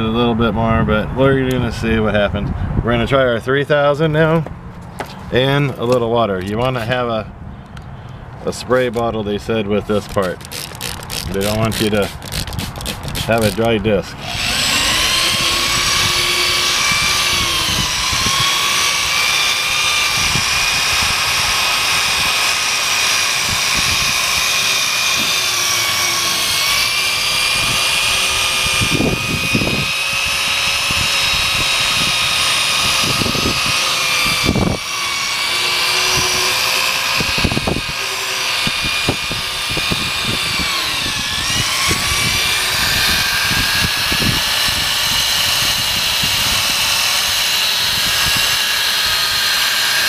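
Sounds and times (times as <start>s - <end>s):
power drill motor whine: 10.1s - 13.6s, 14.2s - 50.0s.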